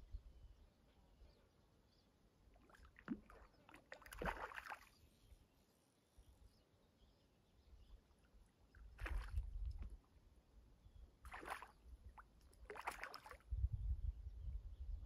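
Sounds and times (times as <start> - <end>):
water splashing: 2.6 - 4.9, 8.9 - 9.8, 11.3 - 11.8, 12.6 - 13.4.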